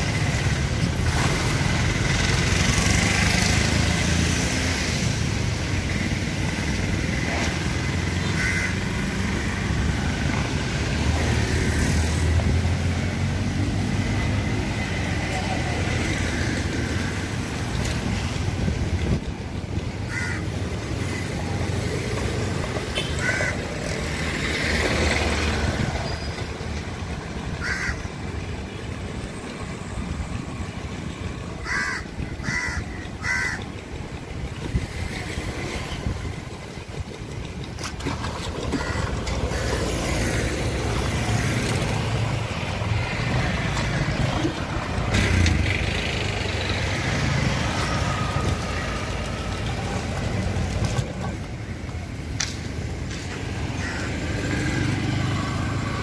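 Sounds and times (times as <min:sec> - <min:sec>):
crows cawing: 0:08.2 - 0:09.1, 0:20.0 - 0:20.6, 0:23.2 - 0:23.8, 0:27.6 - 0:28.1, 0:31.6 - 0:33.7, 0:38.8 - 0:41.7, 0:53.7 - 0:54.4.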